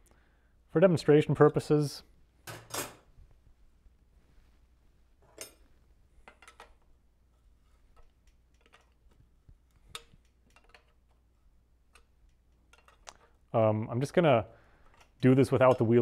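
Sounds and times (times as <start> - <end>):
faint metallic clicks and taps: 7.9 - 11.2, 11.9 - 13.4.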